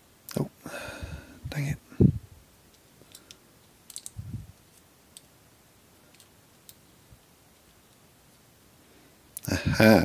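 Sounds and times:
metallic clicks of steel parts: 2.7s - 5.4s, 6.1s - 6.8s.

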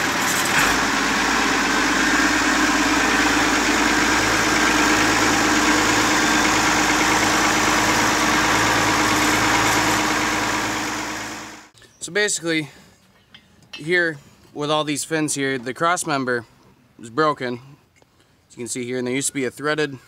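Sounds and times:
tractor engine idling: 0.0s - 11.7s.

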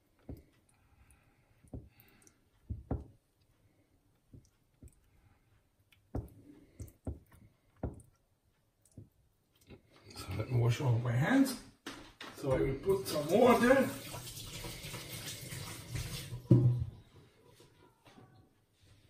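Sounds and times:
soft knocks and clicks of hands: 5.9s - 8.2s.

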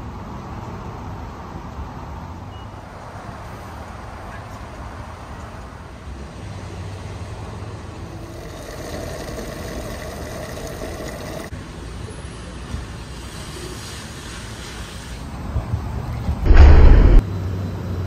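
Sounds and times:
fuel rushing into a tank: 8.2s - 11.5s.

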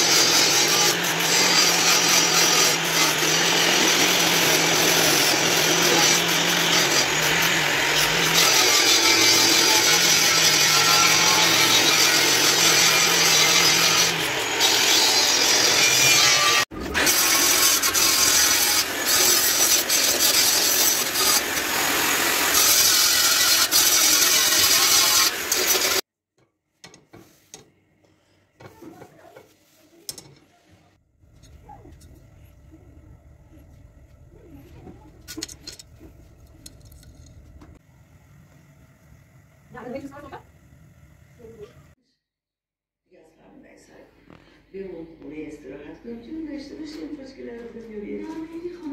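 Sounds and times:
angle grinder grinding steel: 0.0s - 26.0s.

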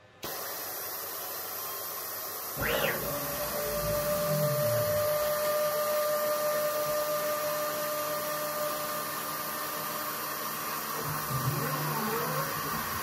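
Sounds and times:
laser cutter whirring hiss: 0.2s - 13.0s
steady whine: 2.6s - 7.2s.

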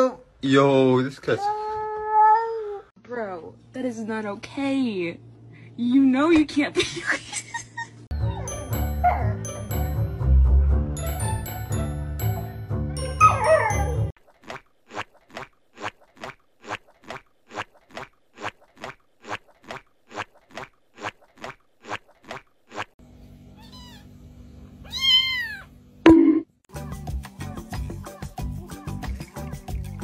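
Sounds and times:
cat meowing: 23.6s - 24.1s, 24.8s - 25.7s.

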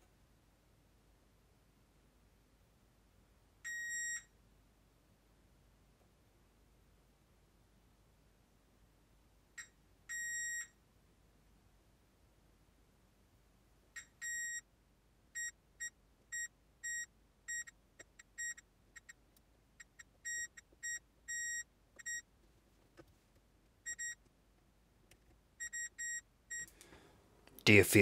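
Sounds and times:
multimeter beeping: 14.0s - 14.6s, 15.4s - 19.2s, 19.8s - 22.2s, 23.9s - 24.2s, 25.6s - 26.7s.

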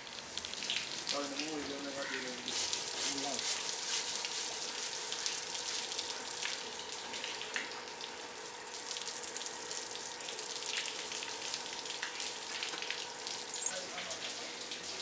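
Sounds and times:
hose water spraying: 0.5s - 7.7s.

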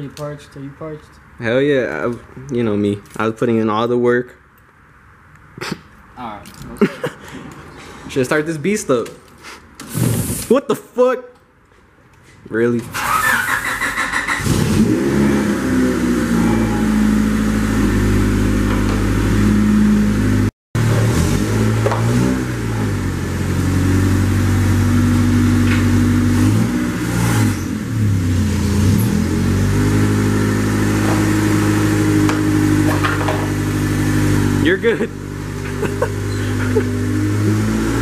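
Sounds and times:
car engine revving: 13.0s - 38.0s.

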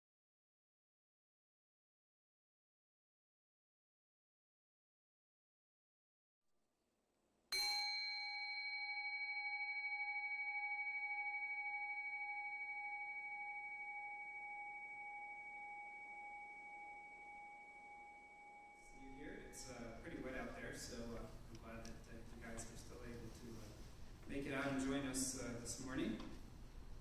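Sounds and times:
bowl bell ringing: 7.5s - 19.7s.

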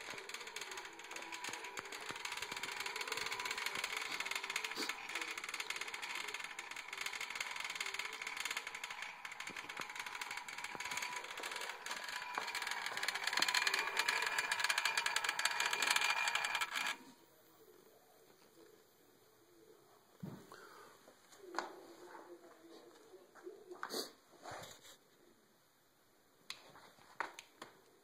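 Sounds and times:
legs rattling on metal grille: 0.0s - 17.0s
toy vibration motor buzzing: 0.0s - 17.1s.

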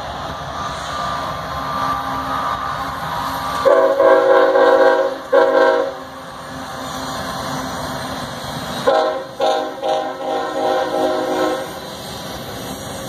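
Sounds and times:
locomotive air horn: 3.6s - 6.0s, 8.8s - 11.8s.

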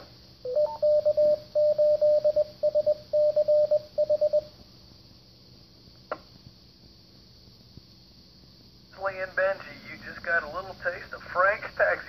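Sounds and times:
morse code beeps: 0.5s - 4.5s
faint radio hiss: 4.5s - 12.0s.

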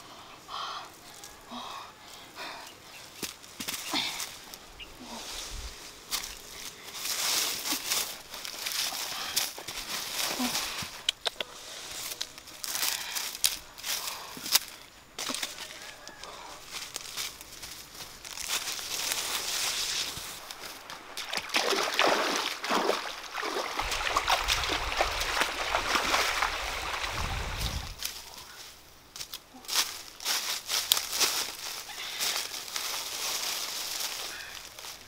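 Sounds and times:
dry grass and leaves rustling: 0.2s - 35.0s
footsteps splashing through stream: 16.8s - 28.2s.

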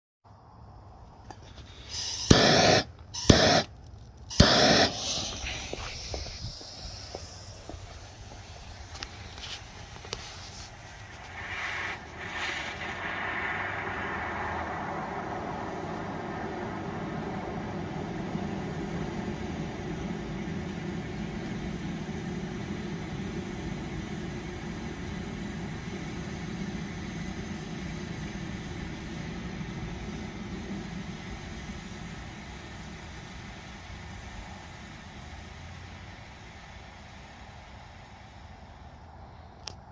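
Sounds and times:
fuse burning with crackles: 1.0s - 16.6s, 17.2s - 39.9s
blowtorch flame hissing: 1.4s - 15.9s, 17.4s - 38.8s
blowtorch igniter click: 1.9s - 7.6s.

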